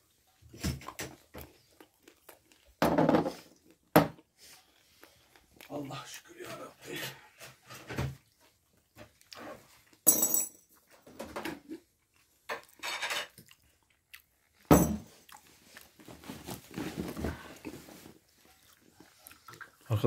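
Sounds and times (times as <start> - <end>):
plates and cutlery clattering: 12.5 - 13.4.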